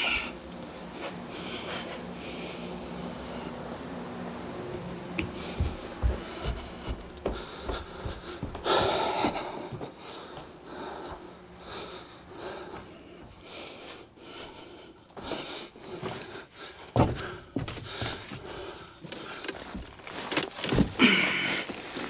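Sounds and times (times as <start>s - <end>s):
heavy breathing: 1.0s - 3.8s, 5.2s - 19.8s
duct scraping and rustling: 19.0s - 22.0s.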